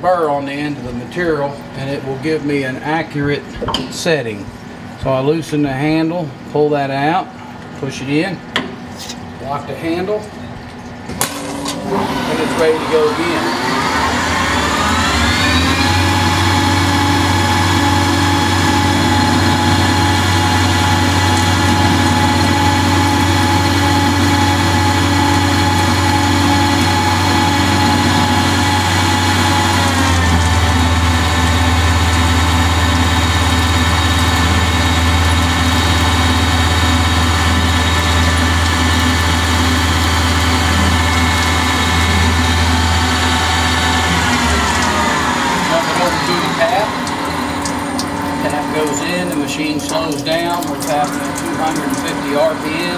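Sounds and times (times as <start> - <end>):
lathe spindle motor whine: 11.2 - 49.9.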